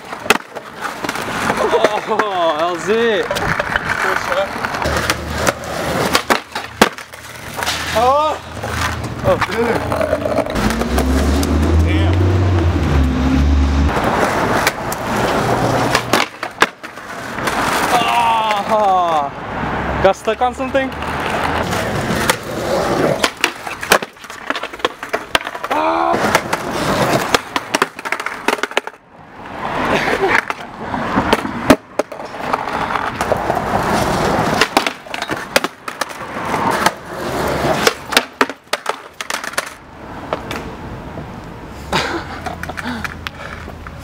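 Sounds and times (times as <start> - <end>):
skater falling onto concrete: 0.0 - 10.9, 13.9 - 18.9, 21.2 - 29.0, 29.9 - 40.7
skateboard deck clacking on pavement: 0.0 - 11.6, 13.9 - 19.2, 20.9 - 29.0, 29.7 - 40.8, 42.4 - 44.0
skateboard wheels rolling on concrete: 0.0 - 44.0.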